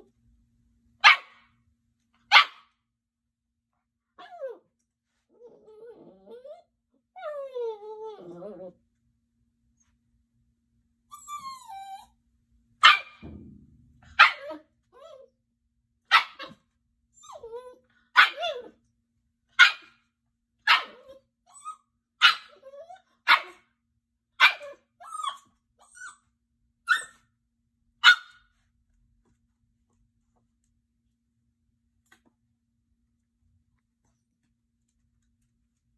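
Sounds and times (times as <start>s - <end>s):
puppy barking: 1.0s - 1.5s, 2.3s - 2.7s, 12.8s - 13.3s, 14.1s - 15.1s, 16.1s - 16.6s, 18.1s - 18.7s, 19.6s - 20.0s, 20.6s - 21.2s, 22.2s - 23.7s, 24.4s - 25.4s, 28.0s - 28.5s
puppy whining: 4.2s - 8.8s, 11.1s - 12.2s, 14.2s - 15.4s, 17.1s - 18.8s, 20.7s - 23.2s, 24.5s - 26.3s.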